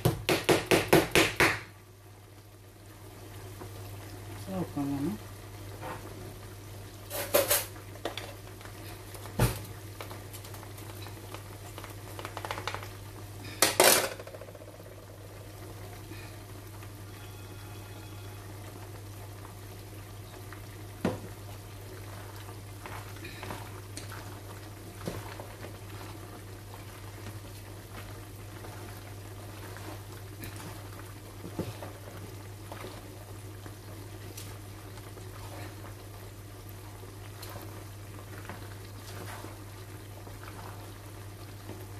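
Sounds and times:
meat sizzling in a frying pan: 0:00.0 - 0:41.9.

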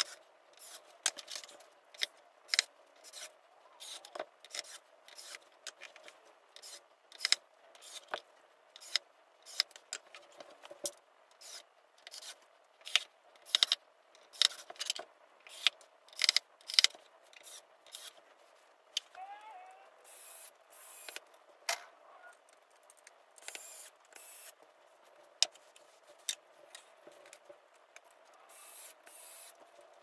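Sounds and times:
screwdriver scratching and clicking: 0:00.0 - 0:08.2, 0:11.4 - 0:18.2.

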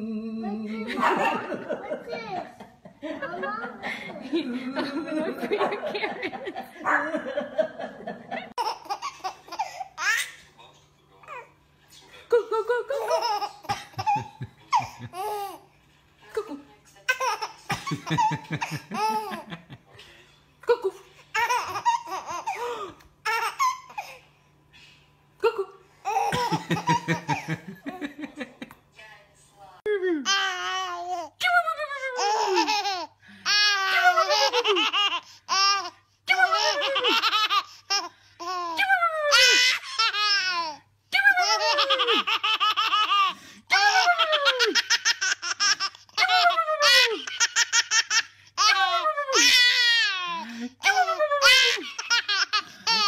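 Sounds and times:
baby laughing: 0:08.5 - 0:10.4, 0:12.9 - 0:15.6, 0:17.1 - 0:19.5, 0:21.3 - 0:24.2, 0:26.0 - 0:27.7, 0:32.0 - 0:53.0.

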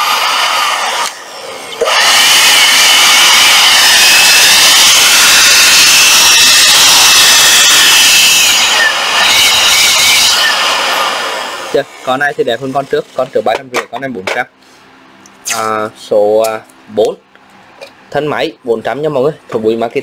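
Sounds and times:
cordless blower running: 0:00.0 - 0:12.8.

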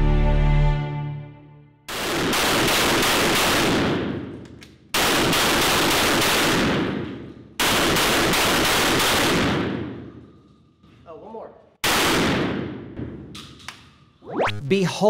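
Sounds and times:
long echo of gunshots: 0:01.9 - 0:10.3, 0:11.8 - 0:13.3.

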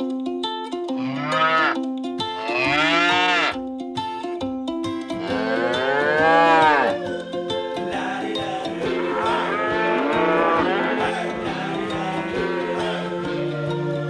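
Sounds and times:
background music: 0:00.0 - 0:14.0
cow mooing: 0:01.0 - 0:01.8, 0:02.4 - 0:03.6, 0:05.1 - 0:07.0, 0:08.8 - 0:13.0.

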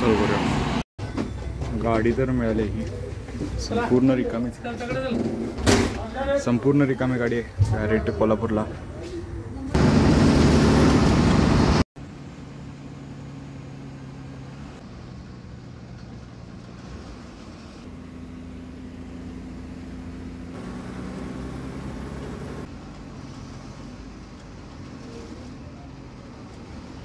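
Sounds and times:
road noise: 0:00.0 - 0:27.0
bus engine hum: 0:08.8 - 0:27.0.

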